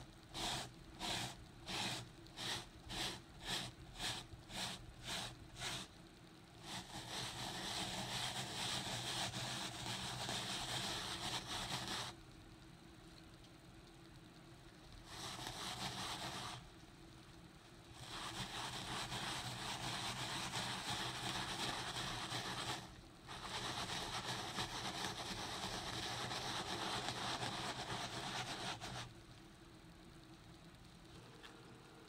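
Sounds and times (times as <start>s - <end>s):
brush scrubbing a rug: 0.4s - 5.9s, 15.1s - 16.6s, 18.0s - 29.0s.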